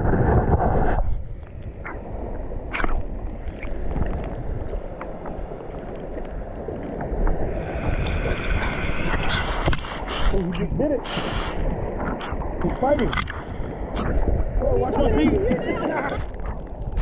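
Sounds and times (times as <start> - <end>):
shallow water sloshing and gurgling: 0.0 - 17.0
small clicks and pops: 12.1 - 13.4.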